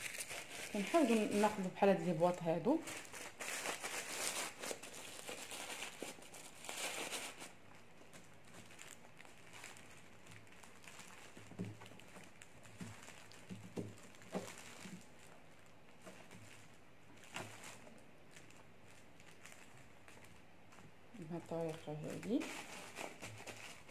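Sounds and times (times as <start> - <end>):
foil wrapping crinkling: 0.0 - 23.9.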